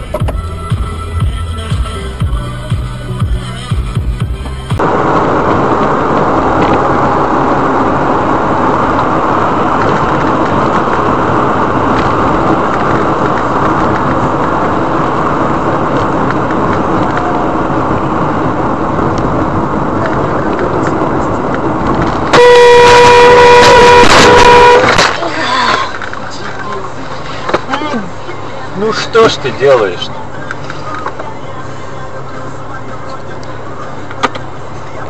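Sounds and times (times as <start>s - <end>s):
car road and engine noise: 0.0s - 35.0s
car horn sounding: 22.2s - 25.2s.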